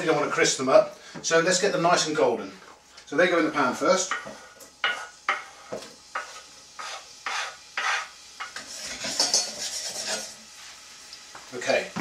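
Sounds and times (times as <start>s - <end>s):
spatula scraping wooden board: 6.2s - 10.3s.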